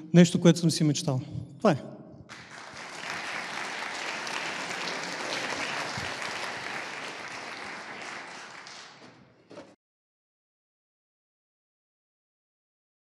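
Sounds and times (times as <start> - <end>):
audience applauding: 2.3 - 9.4.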